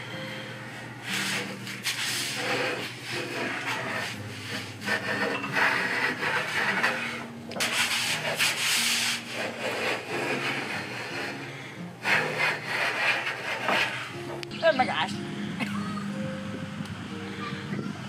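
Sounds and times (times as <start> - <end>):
hand plane shaving wood: 1.1 - 14.2.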